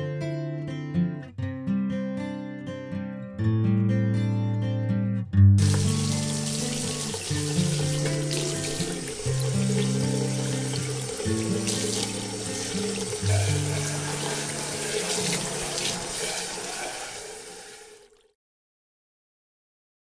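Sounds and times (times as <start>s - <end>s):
background music with low notes: 0.0s - 16.4s
faucet running into sink: 5.6s - 18.3s
saucepan rinsed under water: 5.6s - 18.3s.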